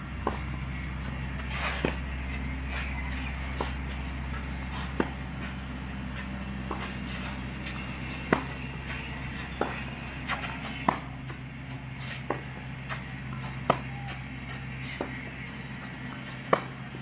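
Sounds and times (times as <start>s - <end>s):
low hum: 0.0s - 17.0s
tennis ball bounces: 0.1s - 17.0s
tennis racket hits: 6.2s - 11.4s.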